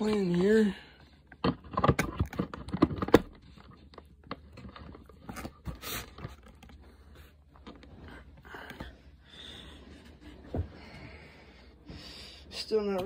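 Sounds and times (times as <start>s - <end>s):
box packaging clicks and crackles: 0.0s - 8.9s.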